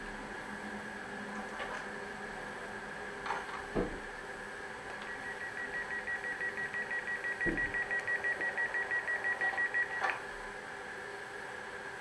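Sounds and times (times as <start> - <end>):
rapid high beeping: 5.1 - 10.0.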